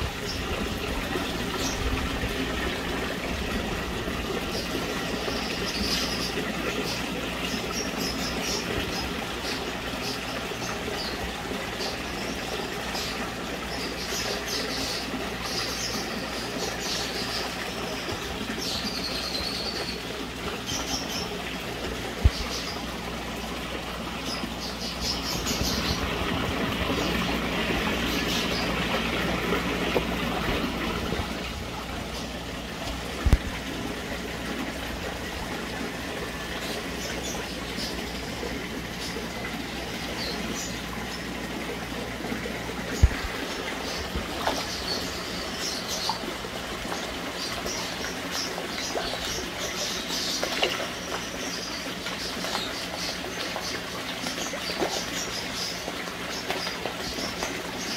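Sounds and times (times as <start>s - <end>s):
water sloshing and trickling: 0.0s - 57.9s.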